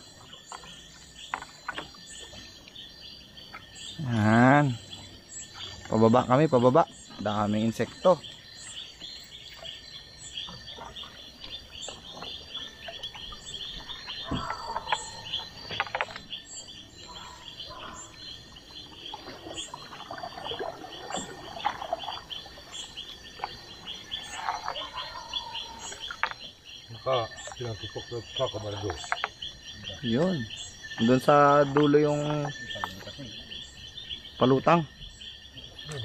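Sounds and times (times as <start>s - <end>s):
frogs trilling: 0.0s - 36.0s
insects droning: 0.0s - 36.0s
lower animal calls: 12.1s - 16.0s, 23.8s - 27.8s.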